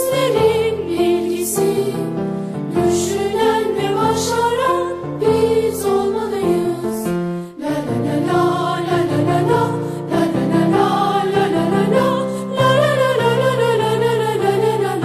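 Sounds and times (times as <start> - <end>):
group singing an anthem: 0.0 - 15.0.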